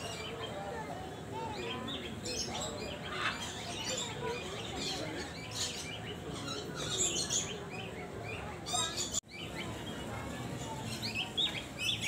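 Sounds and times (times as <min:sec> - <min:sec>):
many birds chirping: 0:00.0 - 0:12.0.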